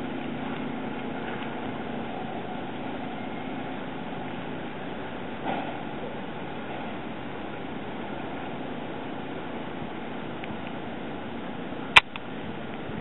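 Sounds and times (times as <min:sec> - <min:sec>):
sharp click: 0:12.0 - 0:12.2.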